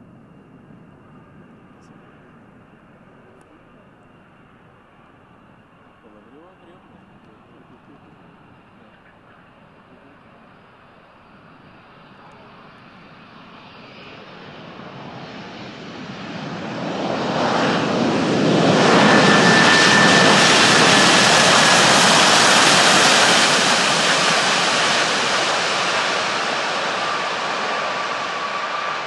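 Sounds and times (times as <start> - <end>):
jet engines passing overhead: 0.0 - 29.0
thin engine whine: 11.3 - 29.0.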